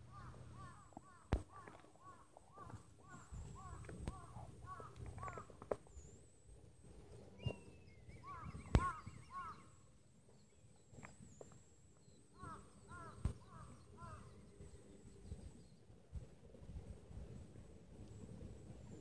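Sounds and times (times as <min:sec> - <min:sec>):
birds calling: 0:00.0 - 0:06.3, 0:07.2 - 0:15.7.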